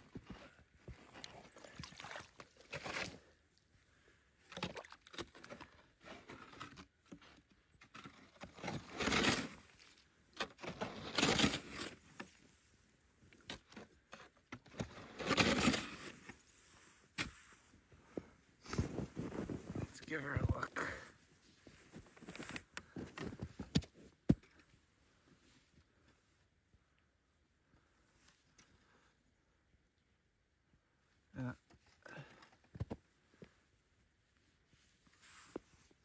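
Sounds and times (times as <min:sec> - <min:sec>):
scooping splashing slush: 0:01.4 - 0:03.1.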